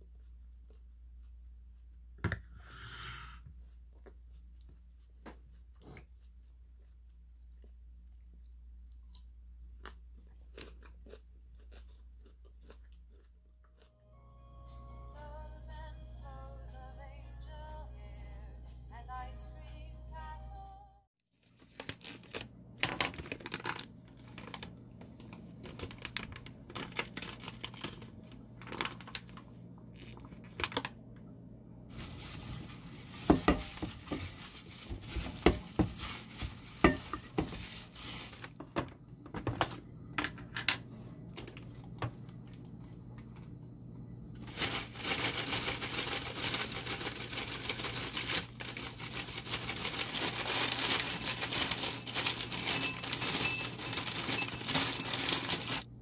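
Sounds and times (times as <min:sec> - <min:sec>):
plastic gloves crinkling: 0:21.4 - 0:30.8, 0:31.9 - 0:38.6, 0:44.4 - 0:56.0
plastic bag crinkling: 0:21.4 - 0:30.9, 0:31.9 - 0:38.6, 0:44.4 - 0:56.0.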